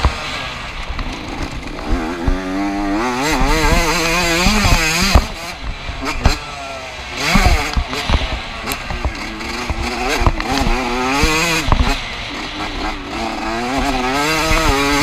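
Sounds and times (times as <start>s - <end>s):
two-stroke motocross engine revving: 0.0s - 15.0s
sharp knocks from motorbike: 11.6s - 12.0s.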